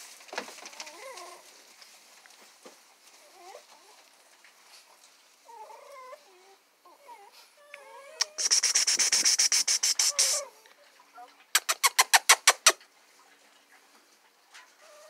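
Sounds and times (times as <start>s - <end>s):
puppies whimpering: 5.5s - 10.6s.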